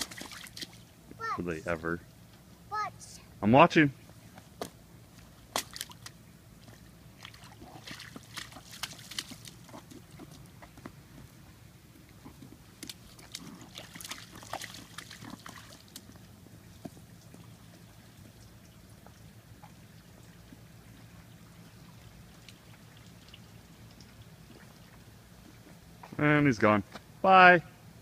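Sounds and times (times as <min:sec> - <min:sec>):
rain boots splashing in puddle: 0:00.0 - 0:00.8, 0:05.5 - 0:10.6, 0:12.7 - 0:17.5.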